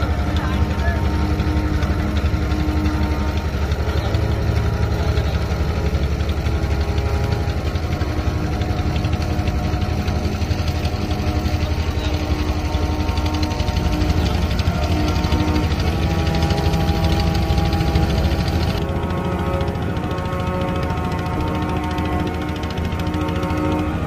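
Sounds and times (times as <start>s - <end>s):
motorboat engine pulsing: 0.0s - 24.0s.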